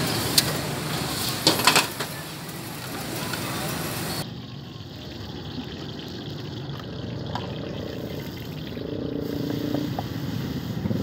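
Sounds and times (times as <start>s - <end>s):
garlic sizzling in hot oil: 0.0s - 4.2s
engine hum: 0.0s - 4.4s.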